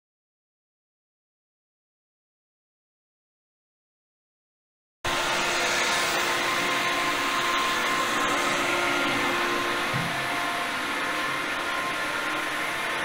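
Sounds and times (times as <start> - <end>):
ship machinery whirring drone: 5.1 - 13.0.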